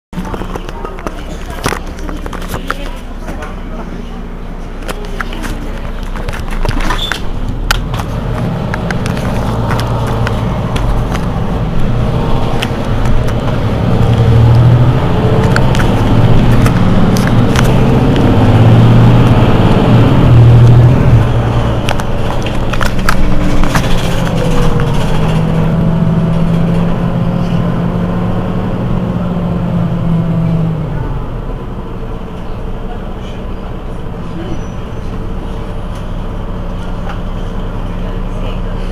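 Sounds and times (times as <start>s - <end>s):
bus diesel engine idling: 0.2s - 38.9s.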